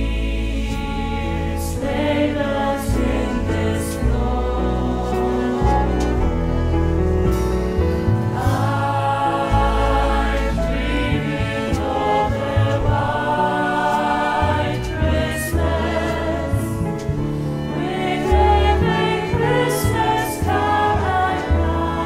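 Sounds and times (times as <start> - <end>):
instrumental backing with bass line: 0.0 - 22.0
vocal ensemble singing in harmony: 0.0 - 22.0.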